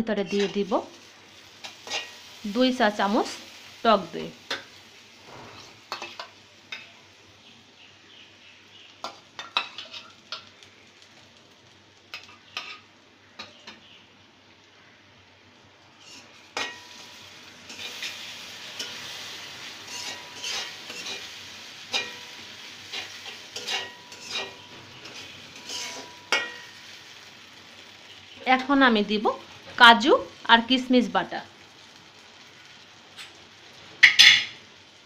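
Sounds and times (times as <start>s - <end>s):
frying sizzle: 0.0s - 35.0s
spoon scraping metal pot: 0.2s - 0.7s, 19.9s - 21.3s, 22.9s - 26.5s.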